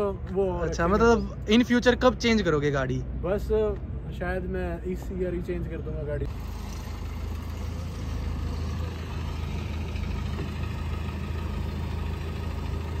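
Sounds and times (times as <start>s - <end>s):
car engine rumbling by: 5.4s - 13.0s.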